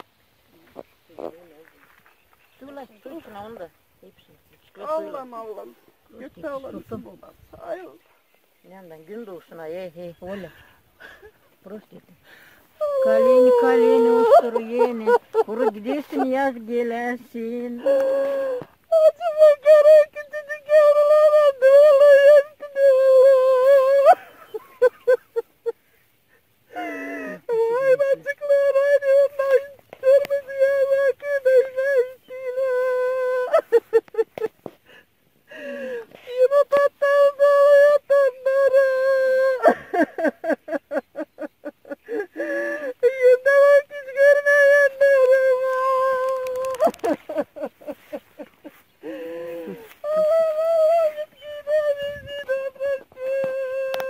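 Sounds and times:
woman singing unaccompanied: 8.7s - 25.4s, 26.8s - 34.2s, 36.0s - 41.2s, 42.3s - 54.0s
woman sobbing: 9.5s - 54.0s
woman wailing a lament: 12.8s - 25.8s, 26.7s - 34.5s, 35.5s - 54.0s.

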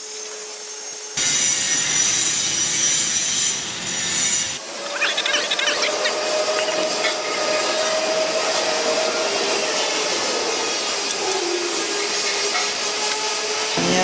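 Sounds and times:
machinery hiss: 5.7s - 14.0s.

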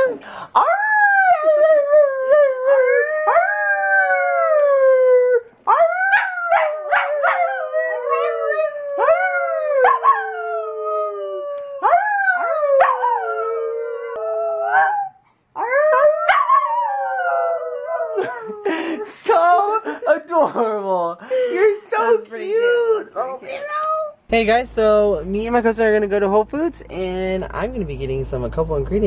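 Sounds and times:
dog howling: 0.0s - 18.5s.

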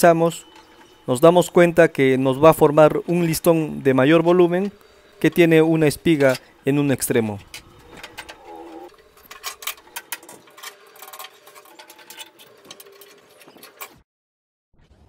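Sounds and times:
clamp squeak: 0.0s - 6.6s, 7.4s - 14.0s
metal clamps clicking and clattering: 2.9s - 6.6s, 7.4s - 14.0s.

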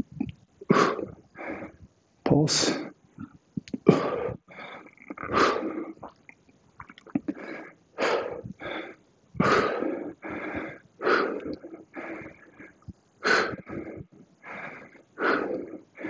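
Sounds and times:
man breathing hard: 0.7s - 1.8s, 3.8s - 6.0s, 7.3s - 16.0s.

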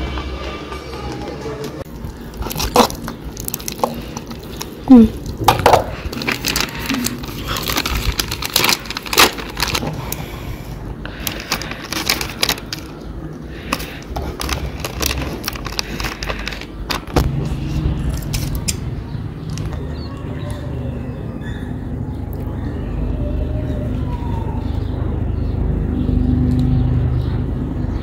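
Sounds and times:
plastic packet crinkling: 1.9s - 10.3s, 11.1s - 17.2s
low rumble: 14.8s - 24.4s.

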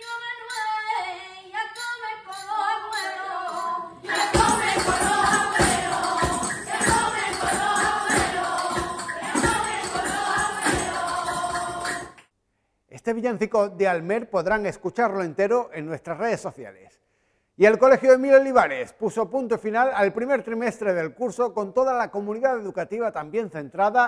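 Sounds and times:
group of women singing: 0.0s - 12.3s
tambourines: 1.8s - 12.2s
person singing: 2.3s - 12.2s
hand claps: 4.2s - 12.3s.

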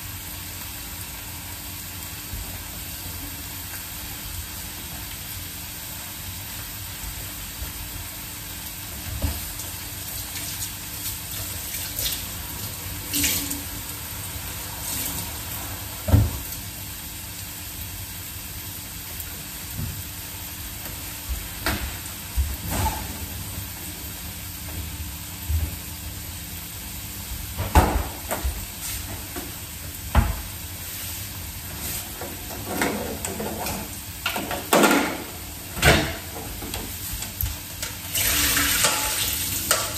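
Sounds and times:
food frying in oil: 0.0s - 39.9s
tap water running into sink: 38.1s - 39.9s.

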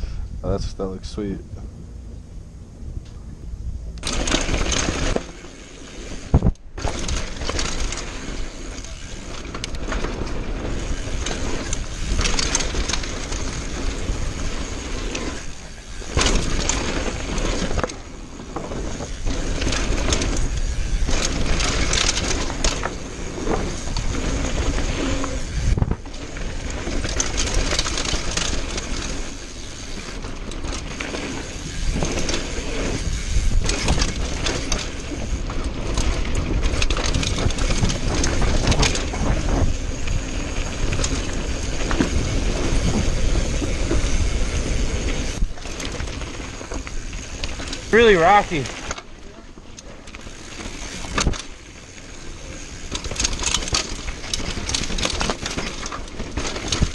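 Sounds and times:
bike tyres on dirt and gravel: 1.8s - 56.9s
bike rattling and knocking: 4.0s - 56.9s
wind buffeting microphone: 18.9s - 27.2s, 31.4s - 45.9s.

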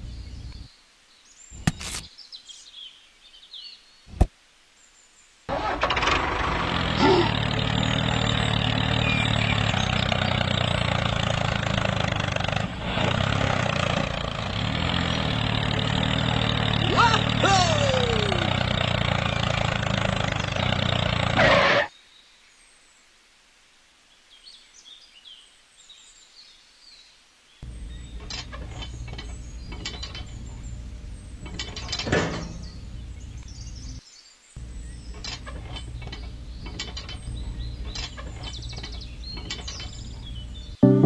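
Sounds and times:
engine-like running sound: 5.5s - 21.9s, 27.6s - 34.0s, 34.6s - 41.0s
faint bird chirps: 24.1s - 40.8s
low hum: 34.6s - 41.0s.

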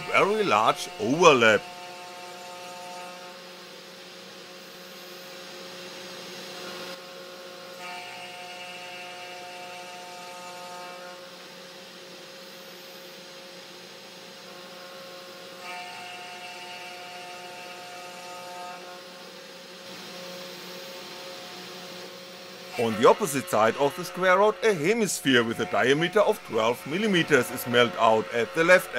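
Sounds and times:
high multi-tone whine: 0.0s - 1.8s, 19.9s - 28.9s
cnc spindle motor running: 0.0s - 28.9s.

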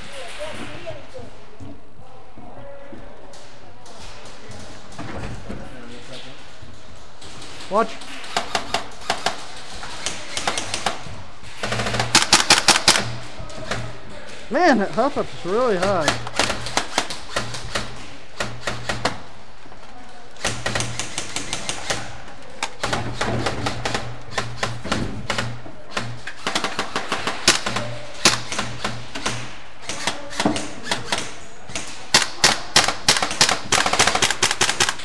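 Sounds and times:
airsoft guns firing: 7.4s - 14.0s, 15.1s - 19.4s, 20.4s - 35.0s.

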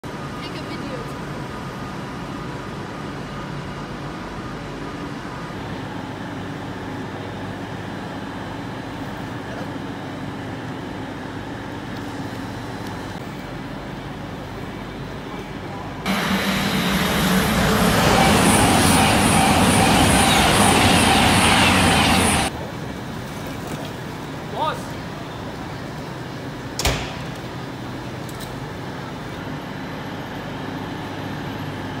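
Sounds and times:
idling trains humming: 0.1s - 32.0s.

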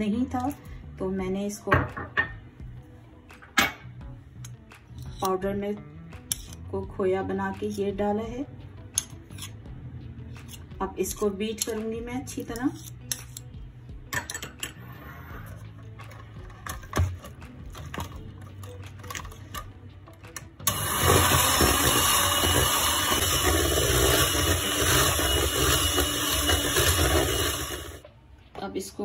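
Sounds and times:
electric hand mixer whipping batter: 20.7s - 28.0s.

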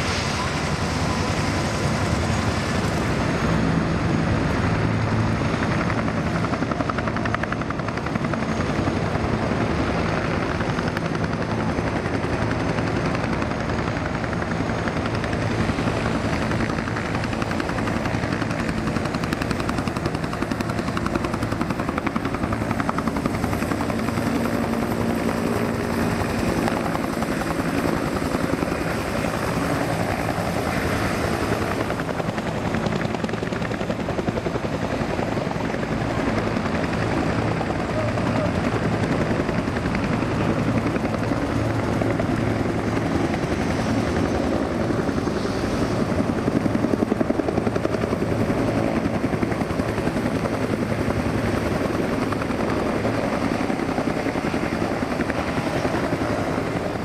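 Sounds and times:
military helicopters running: 0.0s - 57.0s.

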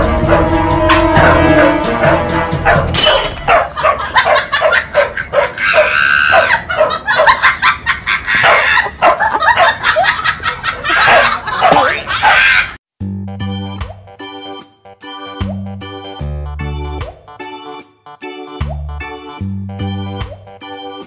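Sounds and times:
dog barking: 1.2s - 7.4s, 8.4s - 9.9s, 10.9s - 12.6s.

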